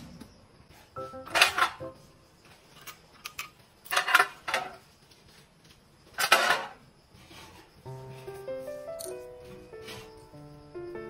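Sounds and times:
metal drawers clattering and rattling: 1.0 - 2.0, 2.8 - 4.8, 6.2 - 6.8.

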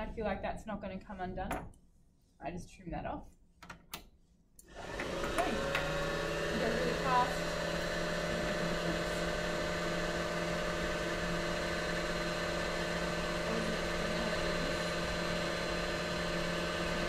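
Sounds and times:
sewing machine motor whining: 4.7 - 17.0.

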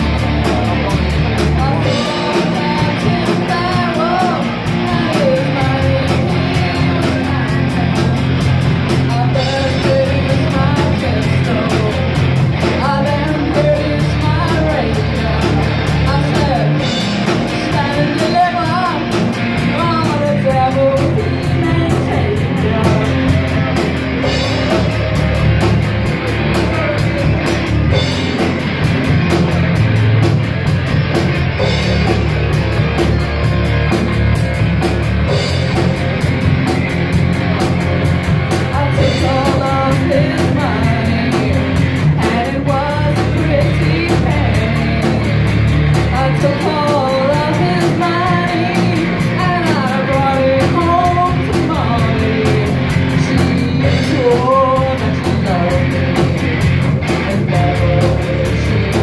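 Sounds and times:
bass guitar: 0.0 - 59.0
drum kit: 0.0 - 59.0
electric guitars: 0.0 - 59.0
woman singing: 1.4 - 8.0, 8.9 - 25.0, 38.6 - 56.4, 57.0 - 59.0.

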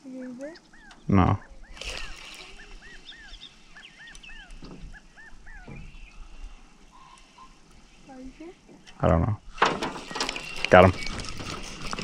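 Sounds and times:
animal high calls: 0.6 - 6.0.

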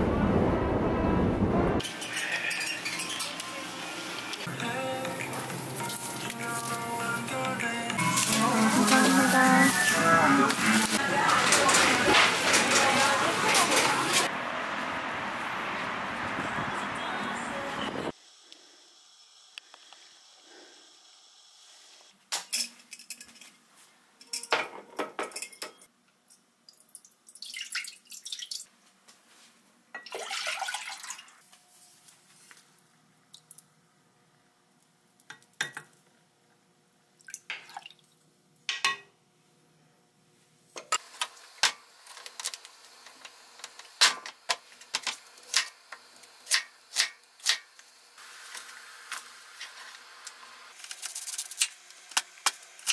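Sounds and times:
utensils clinking against pot: 1.8 - 3.5, 24.2 - 25.9
water running: 8.0 - 14.3, 30.0 - 31.4, 37.2 - 38.2.

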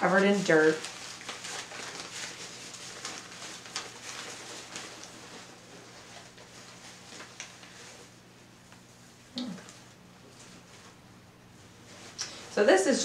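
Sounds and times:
newspaper rustling and crinkling: 0.0 - 8.9.

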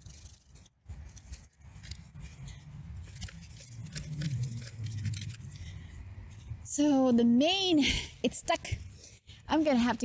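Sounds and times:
loppers crunching roots: 0.0 - 7.0.

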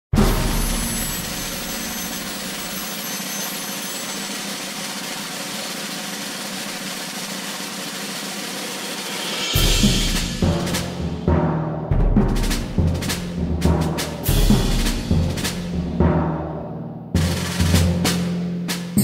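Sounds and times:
low orchestral drum hits: 0.1 - 2.0, 9.4 - 16.6.

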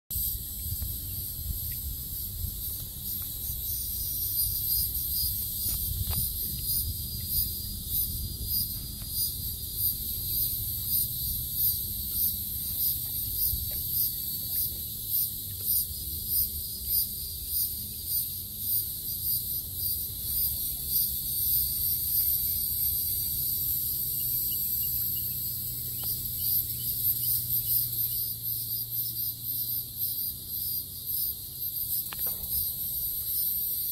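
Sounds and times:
insects chirping in chorus: 0.1 - 33.9.

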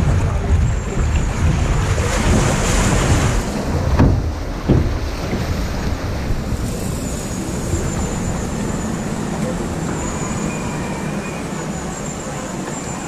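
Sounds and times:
sharp knocks: 0.0 - 6.5
water rushing along a channel: 0.0 - 13.0
wind buffeting microphone: 0.0 - 13.0.

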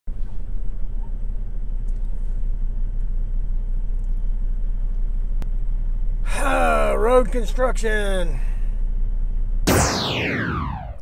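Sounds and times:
truck diesel engine rumble: 0.1 - 9.7.

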